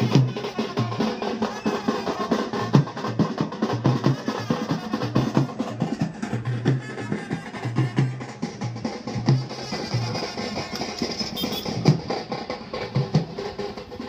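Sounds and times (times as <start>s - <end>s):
rapid drumming: 0.0s - 14.0s.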